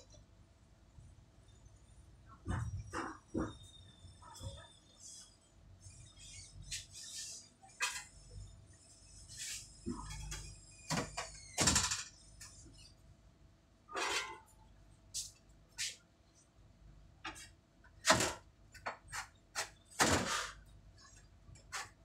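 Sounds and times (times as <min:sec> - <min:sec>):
knocks scrapes and rustles: 0:13.9 - 0:14.5, 0:17.2 - 0:20.6.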